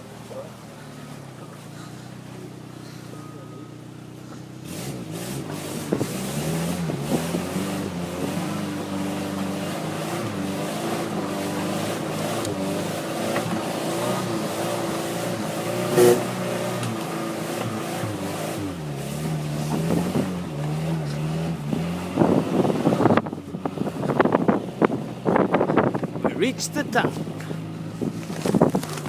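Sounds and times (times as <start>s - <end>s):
car engine labouring uphill: 0.0s - 29.0s.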